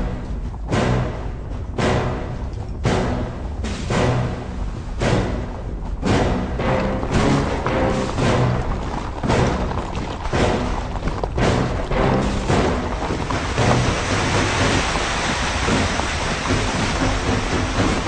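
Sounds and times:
low chords: 0.0 - 9.7
dramatic orchestral film score: 0.0 - 18.0
rumble of galloping horses: 0.0 - 18.0.

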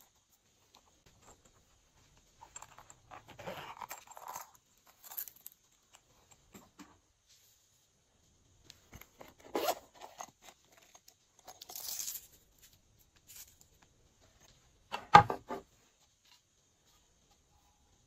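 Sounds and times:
soft plastic rustle: 7.2 - 14.8.

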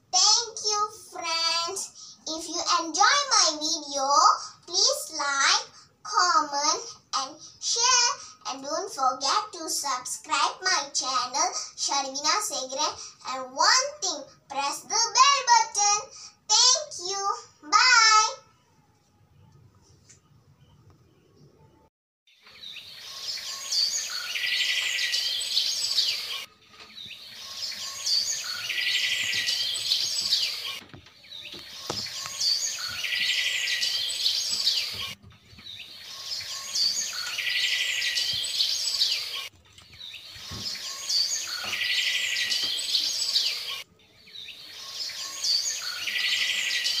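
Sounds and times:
birds chirping and singing: 22.4 - 47.0.

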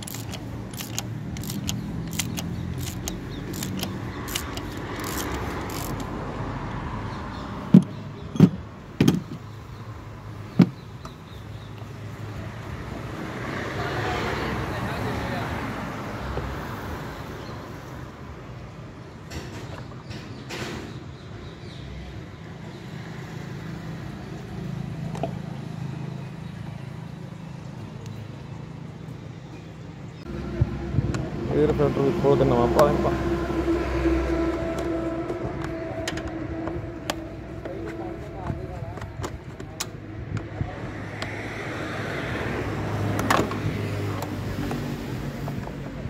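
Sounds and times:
vehicle engine humming: 0.0 - 11.1, 24.0 - 41.7.

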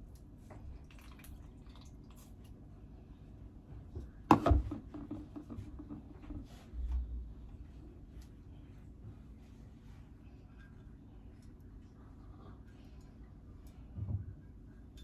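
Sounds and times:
faint drips: 0.1 - 2.7.

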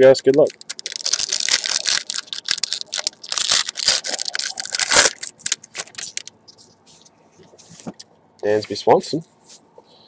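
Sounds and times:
wrapper crinkling and ripping: 0.0 - 6.4.

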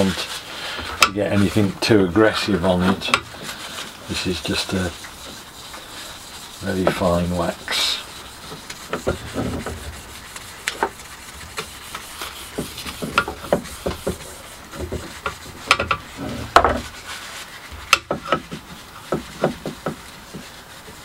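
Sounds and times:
cloth rubbing on metal shaft: 0.0 - 21.0.

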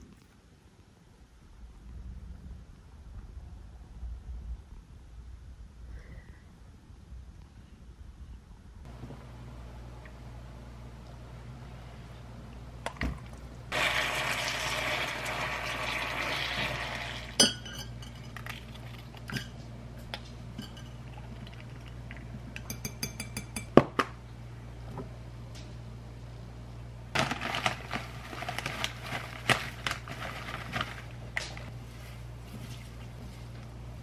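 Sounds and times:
metal spoon clinking on glass: 17.4 - 18.4, 20.6 - 21.0, 22.6 - 23.7.

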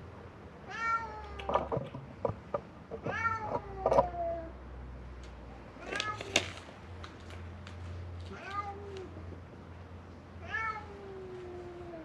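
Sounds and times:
cats meowing: 0.7 - 2.0, 2.9 - 4.5, 5.8 - 6.6, 8.3 - 9.3, 10.4 - 12.0.

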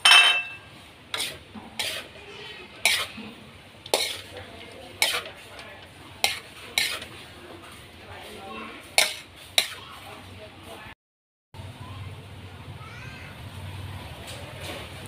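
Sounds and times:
metal spatula scraping a wok: 0.0 - 10.2.

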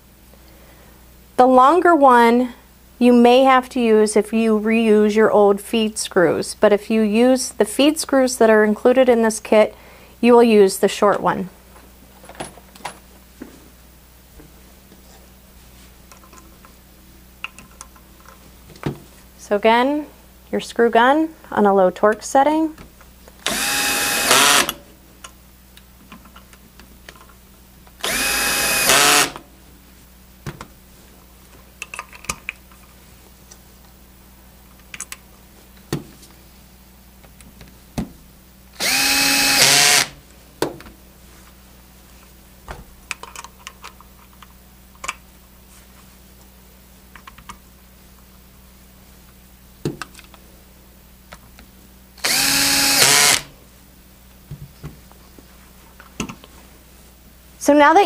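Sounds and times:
cordless screw gun driving screws: 23.4 - 24.8, 28.0 - 29.4, 38.8 - 40.2, 52.2 - 53.5.

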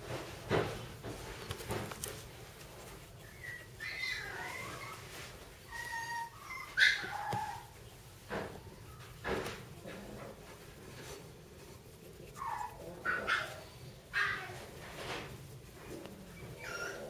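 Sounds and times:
puppies squeaking and whining: 3.0 - 7.9, 12.3 - 14.8, 15.8 - 17.0.

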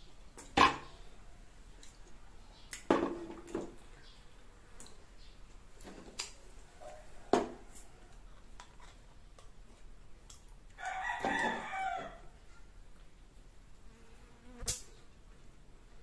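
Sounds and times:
rooster crowing: 10.8 - 12.4.

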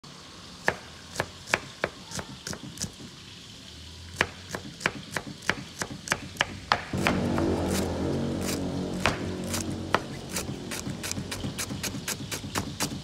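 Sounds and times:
knife chopping on cutting board: 4.2 - 7.2, 9.0 - 13.0.

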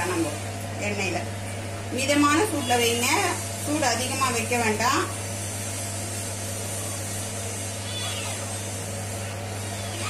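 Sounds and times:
low electrical hum: 0.0 - 10.0
even hiss: 2.2 - 10.0
faint wavering cry: 7.8 - 8.5.

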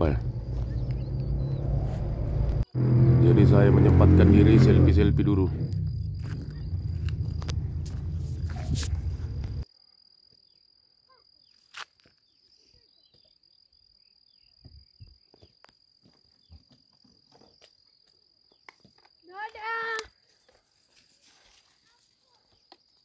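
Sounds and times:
high-pitched insect trill: 4.8 - 23.0.

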